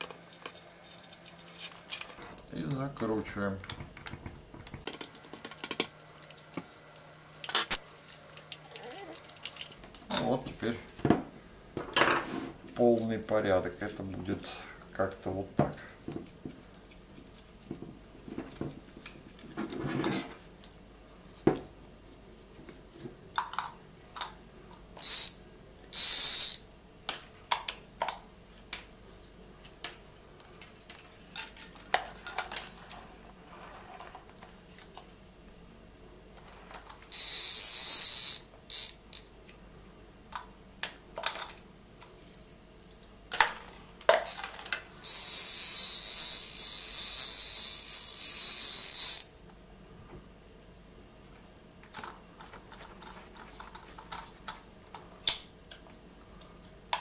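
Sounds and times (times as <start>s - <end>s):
small metal parts clinking: 25.0s - 25.4s, 41.2s - 49.3s.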